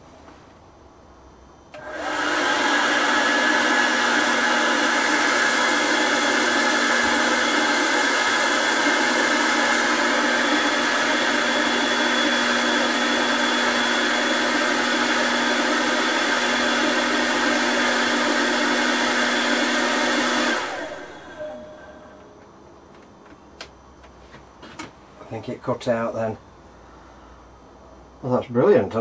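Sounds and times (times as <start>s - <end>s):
steady hum: 0.0s - 29.0s
hair dryer blowing hiss: 1.7s - 22.2s.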